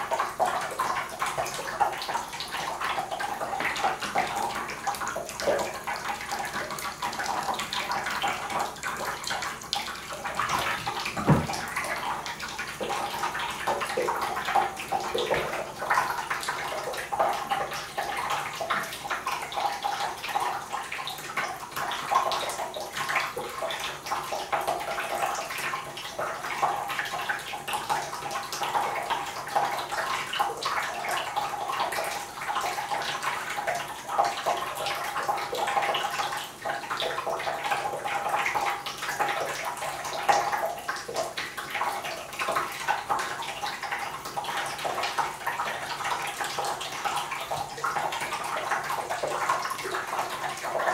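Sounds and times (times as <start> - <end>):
tap water running into bathtub: 0.0 - 50.9.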